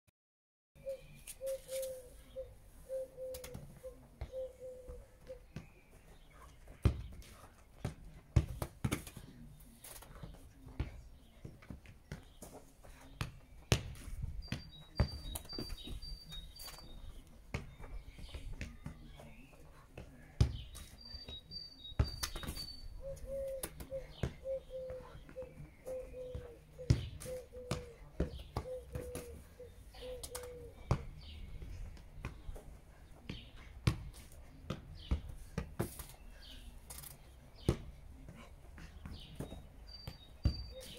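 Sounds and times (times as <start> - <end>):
foot kicking football: 6.7 - 9.3, 25.9 - 29.6, 30.2 - 36.1, 37.6 - 40.9.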